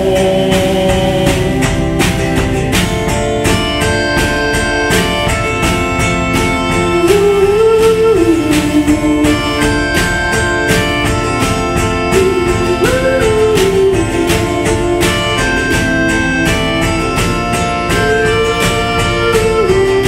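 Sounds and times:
acoustic guitar strumming: 0.0s - 20.0s
melodica melody: 0.0s - 20.0s.

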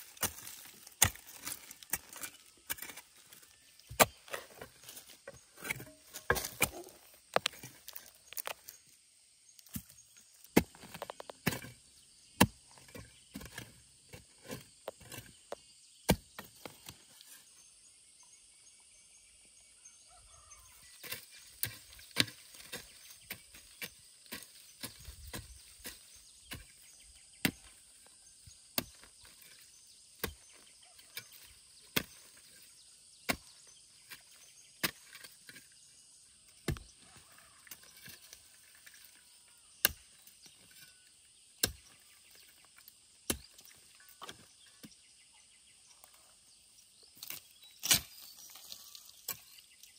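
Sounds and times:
hoe chopping into soil: 0.0s - 8.7s, 9.6s - 15.4s, 16.1s - 17.0s, 21.0s - 27.8s, 28.7s - 35.7s, 41.6s - 42.5s, 43.2s - 45.0s, 47.2s - 49.6s.

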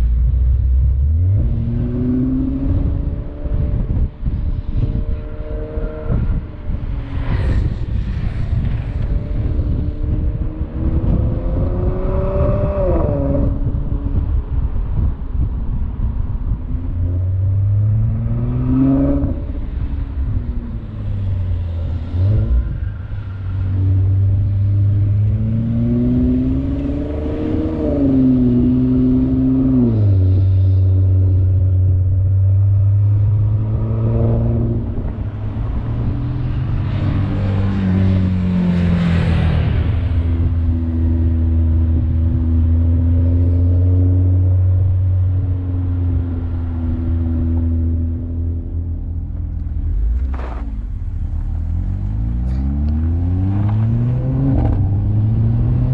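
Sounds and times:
car engine accelerating: 16.4s - 55.9s.

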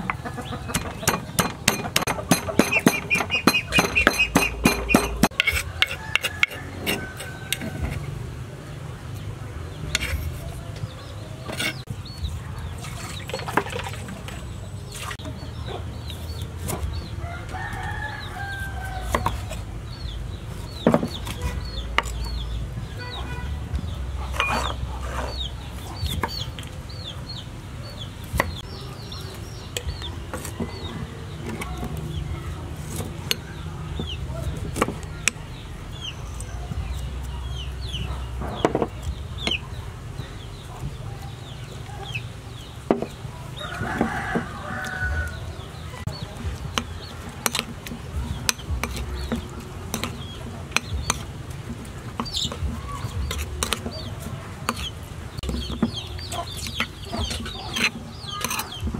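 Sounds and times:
chickens clucking and peeping: 0.0s - 58.9s
metal spoon against ceramic bowl: 0.8s - 8.1s, 48.4s - 51.3s, 54.7s - 58.9s.

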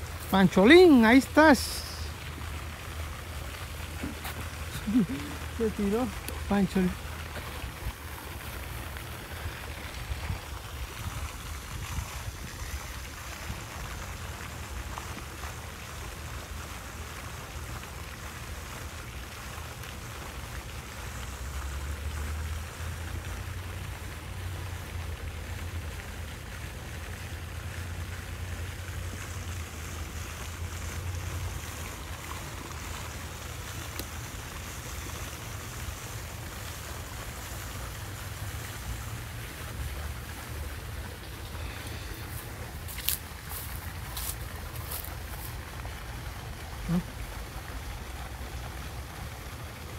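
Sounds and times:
outdoor hiss: 0.0s - 49.9s
wind buffeting microphone: 10.0s - 12.9s.

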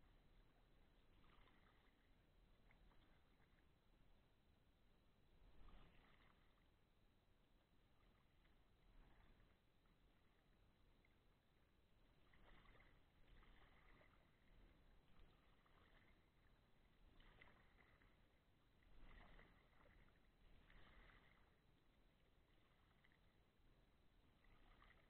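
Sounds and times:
paddle splashing in water: 0.6s - 3.7s, 5.3s - 6.7s, 12.0s - 25.0s.

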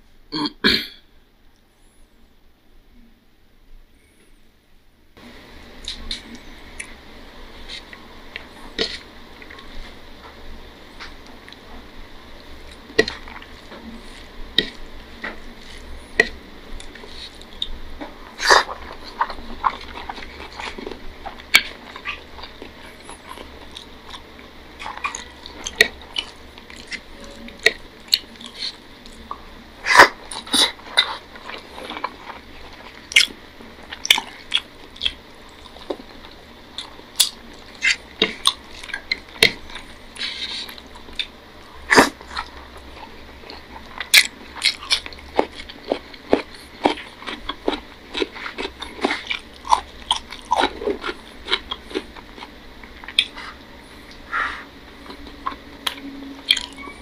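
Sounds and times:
chewing and mouth smacks: 5.8s - 7.0s, 12.6s - 56.9s.

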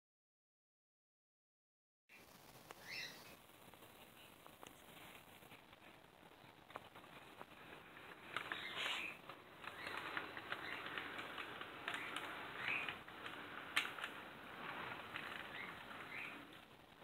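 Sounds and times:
model train wheels clicking: 6.6s - 17.0s
high wheel squeaks: 7.6s - 16.8s.

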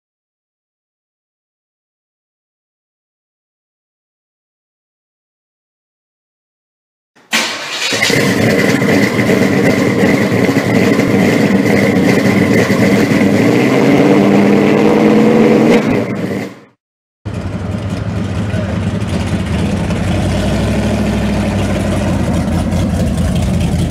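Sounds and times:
car engine starting and running: 7.2s - 23.9s.

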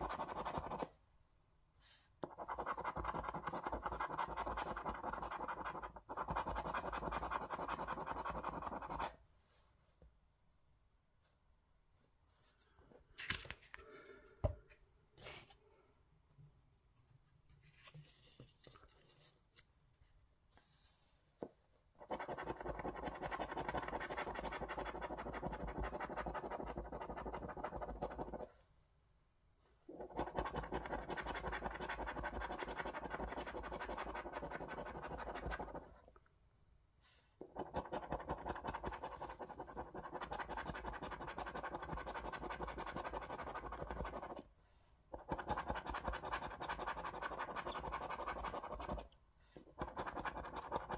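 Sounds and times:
faint card handling: 12.4s - 13.9s, 17.1s - 19.8s
coin scratching scratchcard: 49.8s - 50.9s.

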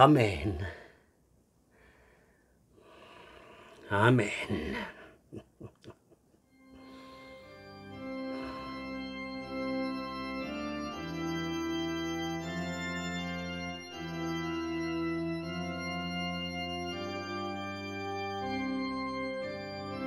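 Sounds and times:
organ playing slow chords: 6.5s - 20.0s.

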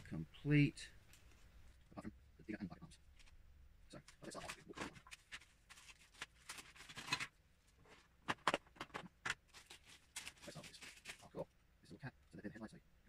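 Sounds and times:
plastic rustling: 4.0s - 11.4s
plastic pieces clicking and tapping: 8.3s - 9.4s.

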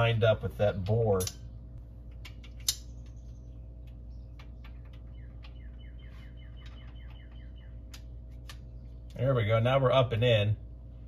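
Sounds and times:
low hum: 0.0s - 11.0s
bird chirping falling notes: 2.4s - 9.2s.

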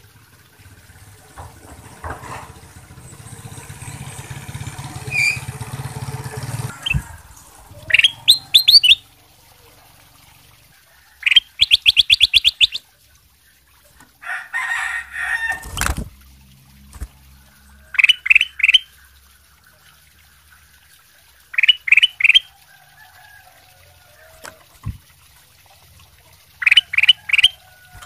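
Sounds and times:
wing flapping: 0.5s - 9.0s, 14.6s - 17.4s
bird knocking on perch: 1.3s - 2.8s
bird trill: 5.0s - 5.6s, 7.8s - 9.1s, 11.2s - 12.8s, 17.9s - 18.9s, 21.5s - 22.5s, 26.6s - 27.6s
bird singing whistled notes: 5.1s - 5.4s, 7.8s - 9.0s, 11.3s - 12.8s.

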